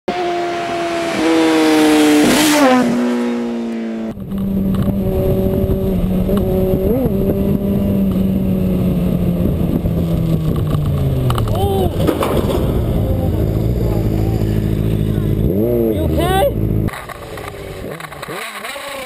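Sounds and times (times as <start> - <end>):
motorcycle engine cruising: 0.1 - 19.0
motorcycle engine rev: 0.1 - 19.0
motorcycle passing by: 0.1 - 19.0
wind rumble: 3.9 - 15.9.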